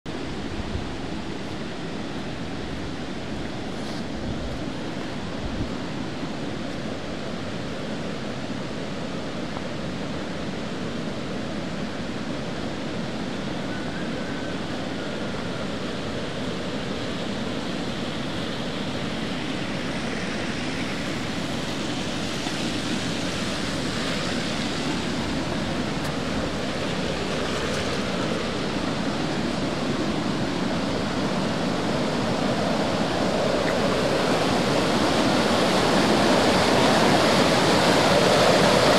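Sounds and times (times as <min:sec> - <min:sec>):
creek rushing: 0:00.1 - 0:38.9.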